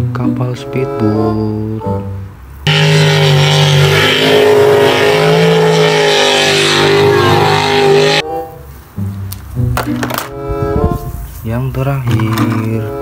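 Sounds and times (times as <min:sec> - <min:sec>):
jet boat engine at high revs: 0:02.7 - 0:08.2.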